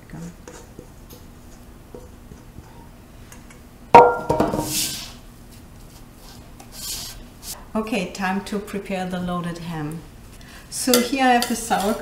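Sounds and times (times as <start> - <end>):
spatula scraping ceramic dish: 11.0 - 12.0.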